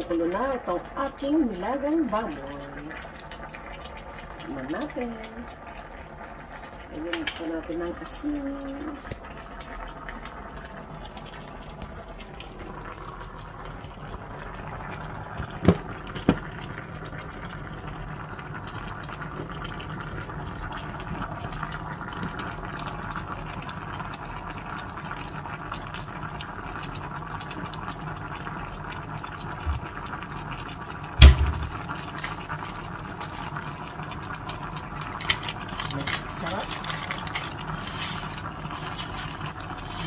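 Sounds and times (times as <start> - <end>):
soup bubbling at a rolling boil: 0.0 - 40.0
thump: 31.2 - 31.8.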